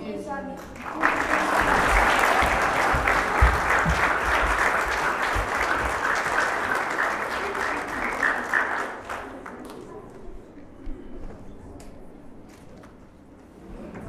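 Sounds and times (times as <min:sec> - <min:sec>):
audience applauding: 0:00.6 - 0:10.2.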